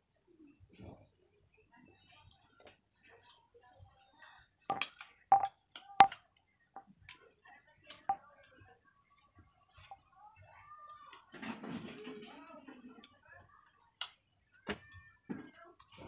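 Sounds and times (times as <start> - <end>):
sharp metallic clinks: 4.7 - 5.5.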